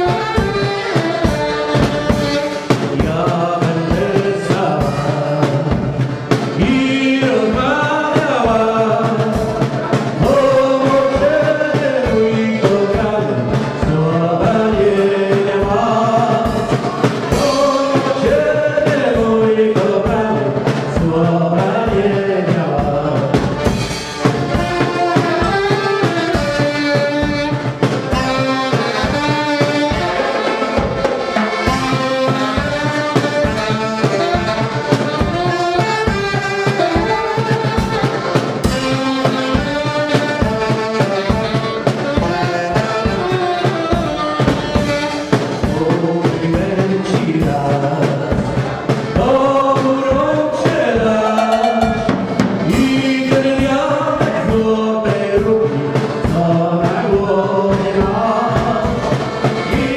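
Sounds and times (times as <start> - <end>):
saxophone: 0.0 - 7.9, 23.2 - 46.2
accordion: 0.0 - 59.9
drum kit beat: 0.0 - 59.9.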